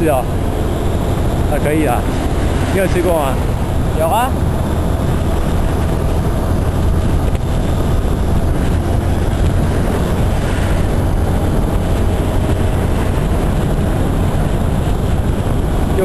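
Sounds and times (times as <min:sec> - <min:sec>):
scooter engine and road noise: 0:00.0 - 0:16.0
wind rushing over microphone: 0:00.0 - 0:16.0.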